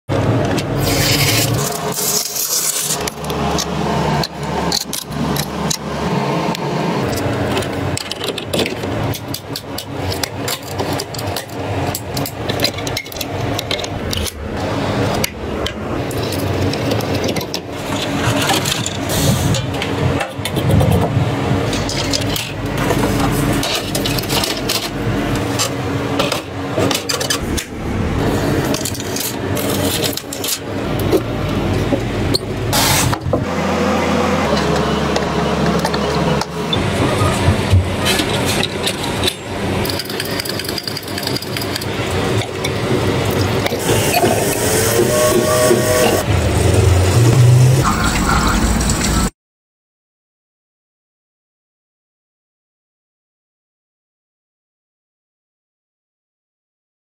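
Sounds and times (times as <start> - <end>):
computer parts clicking and rattling: 0.4 - 5.9, 7.0 - 14.4, 15.0 - 32.5, 36.7 - 44.6.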